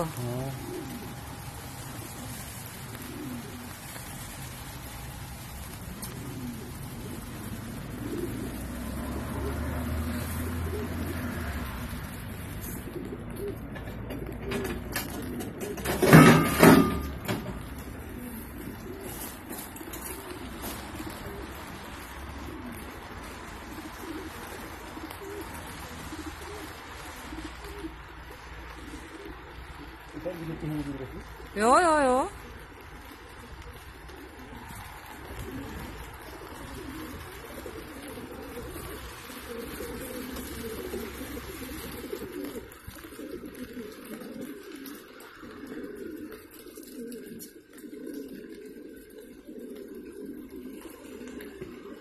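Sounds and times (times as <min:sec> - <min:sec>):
water rushing from hose: 0:00.0 - 0:12.6
pigeons cooing: 0:00.0 - 0:52.0.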